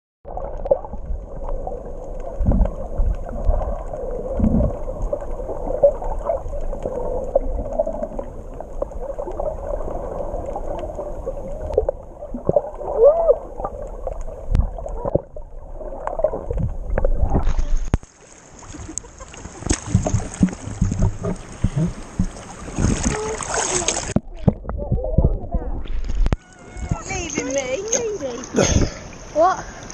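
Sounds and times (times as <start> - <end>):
muffled underwater swishing and bubbling: 0.2 - 29.9
open-air water: 0.2 - 29.9
underwater thumps: 2.2 - 6.4, 13.6 - 18.1, 19.6 - 29.0
wind noise: 2.4 - 4.9.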